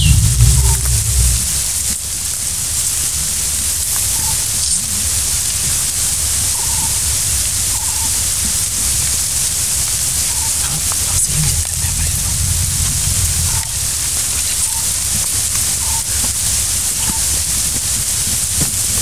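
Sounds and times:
low rumble: 0:00.0 - 0:02.3, 0:10.5 - 0:15.6
high-pitched forest hiss: 0:00.0 - 0:02.4, 0:03.8 - 0:16.2.

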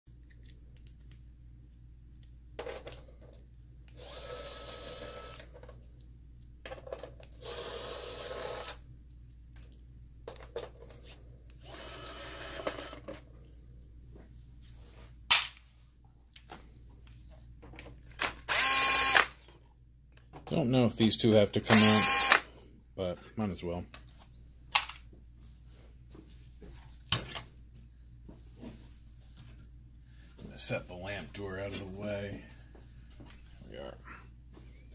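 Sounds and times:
electric screwdriver whirring: 0:03.9 - 0:05.5, 0:07.4 - 0:08.8, 0:11.6 - 0:13.0, 0:18.5 - 0:19.4, 0:21.7 - 0:22.5.

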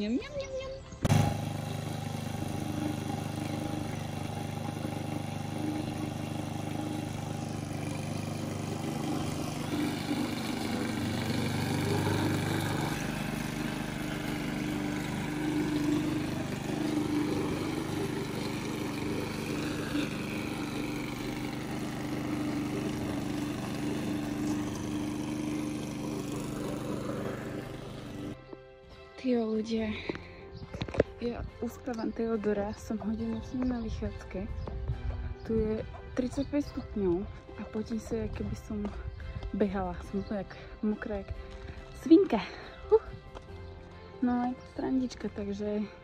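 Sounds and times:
steady engine hum: 0:01.0 - 0:28.4.

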